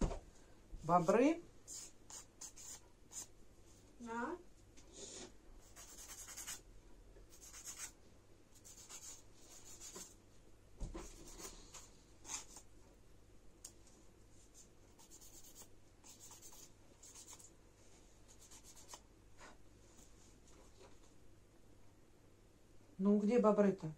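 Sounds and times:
nail file scratching fingernails: 1.7 - 3.3, 5.6 - 6.6, 7.3 - 8.0, 8.6 - 10.1, 11.1 - 12.7, 15.0 - 17.5, 18.3 - 19.0.

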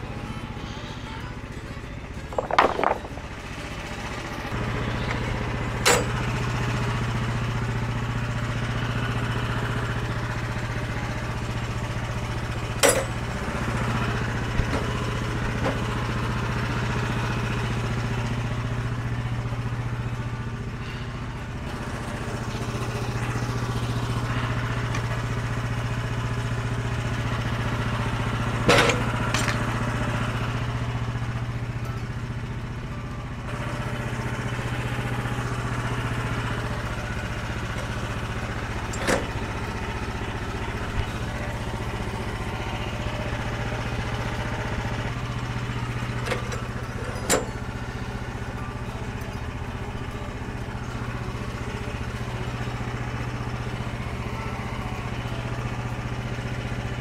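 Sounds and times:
sawmill petrol engine running: 0.0 - 57.0
sharp metallic clanks: 12.8 - 13.2.

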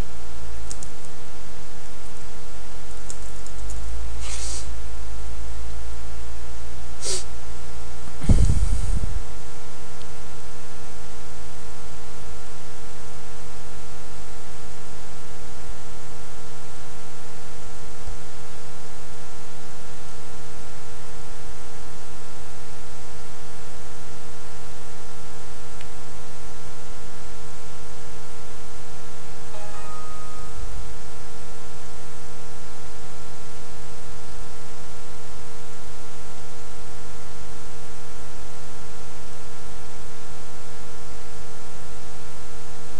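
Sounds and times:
electrical hum and hiss: 0.0 - 42.9
low thump: 8.2 - 9.2
fixed tones: 29.5 - 31.6.

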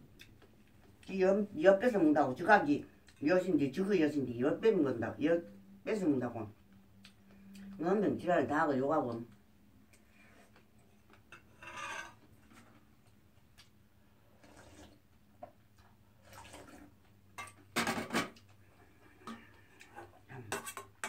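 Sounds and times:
metal dishes clinking: 11.3 - 12.2
person slurping soup: 14.3 - 15.0, 16.2 - 16.9.

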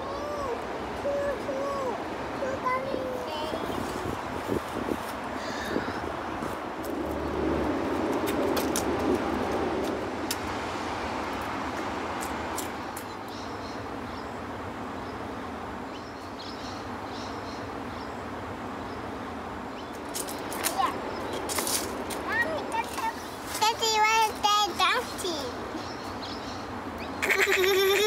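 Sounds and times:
outdoor background noise: 0.0 - 28.0.

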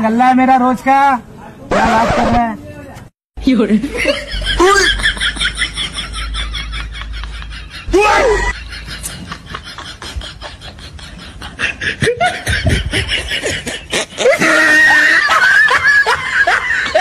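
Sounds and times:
people laughing: 3.6 - 17.0.

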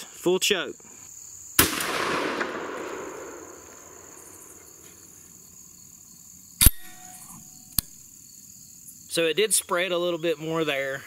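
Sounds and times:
insects trilling: 0.0 - 11.0
shotgun report rolling away: 1.6 - 5.1.

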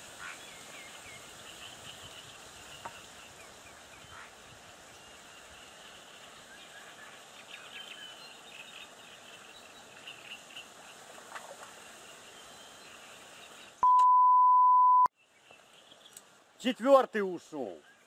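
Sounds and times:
faint outdoor background noise: 0.0 - 18.0
censor bleep: 13.8 - 15.1.

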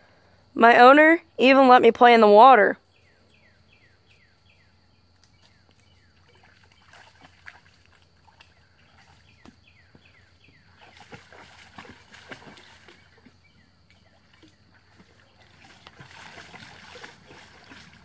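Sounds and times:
dog splashing through water: 5.3 - 18.0.

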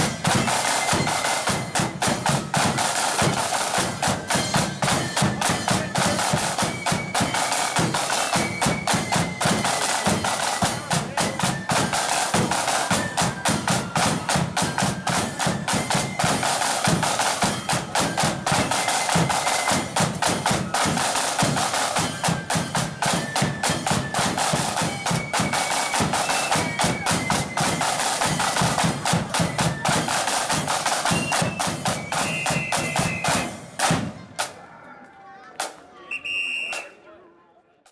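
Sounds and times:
shrill wind melody: 0.0 - 33.9
snare drums rattling: 0.0 - 34.6.

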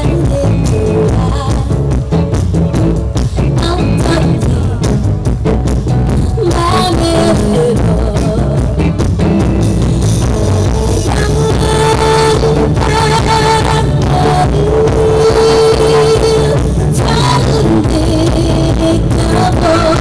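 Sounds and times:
electric guitar: 0.0 - 20.0
steady drum beat: 0.0 - 20.0
upright double bass: 0.0 - 20.0.

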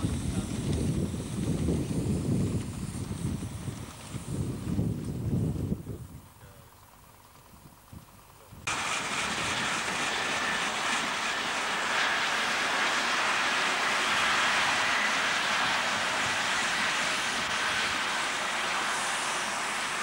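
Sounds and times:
faint high whine: 0.0 - 20.0
train rushing past: 8.7 - 20.0.

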